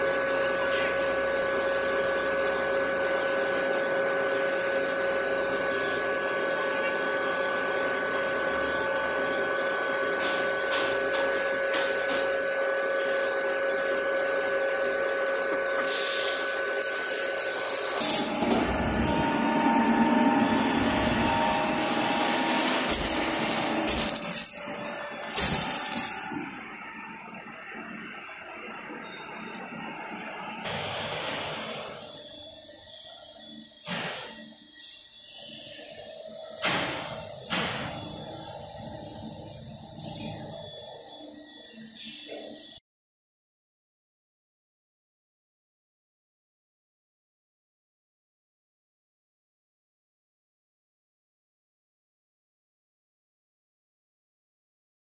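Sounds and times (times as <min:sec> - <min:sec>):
induction heater humming and whining: 0:00.0 - 0:42.8
high-pitched machine squeals: 0:22.7 - 0:30.7, 0:31.6 - 0:36.6, 0:38.0 - 0:42.8.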